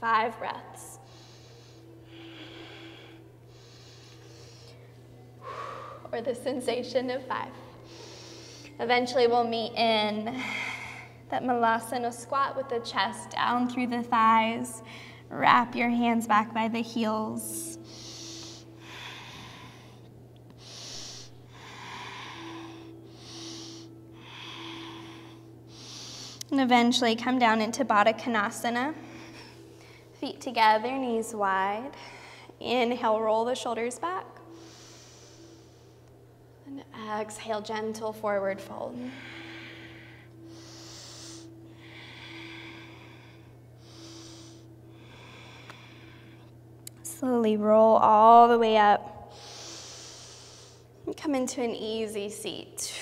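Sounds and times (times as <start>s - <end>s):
person breathing in and out: 1.0s - 6.1s, 7.7s - 8.8s, 17.6s - 26.5s, 34.5s - 36.0s, 39.0s - 46.6s, 49.3s - 50.9s.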